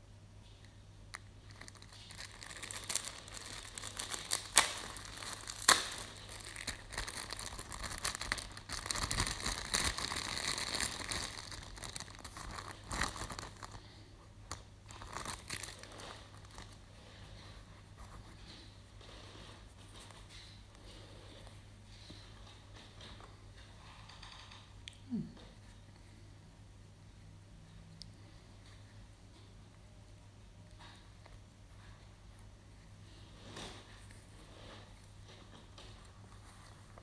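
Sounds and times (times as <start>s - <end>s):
plastic bag crinkling: 1.1s - 16.9s
sharp plastic cracks: 1.6s - 13.6s.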